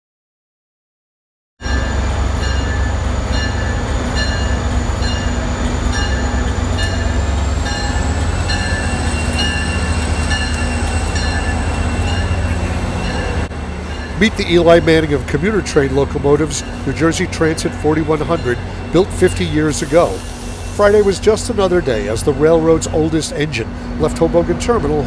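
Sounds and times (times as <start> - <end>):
locomotive bell ringing: 1.6 - 23.8
diesel locomotive rumble: 1.6 - 25.0
faint high whine: 19.7 - 21.6.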